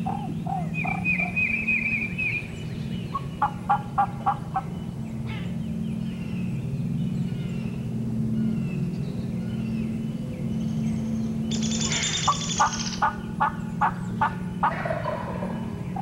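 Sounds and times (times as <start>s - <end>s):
turkey calling: 0.0s - 2.4s, 3.1s - 4.7s, 11.5s - 16.0s
steady low hum: 0.0s - 16.0s
small bird trilling: 11.5s - 13.2s.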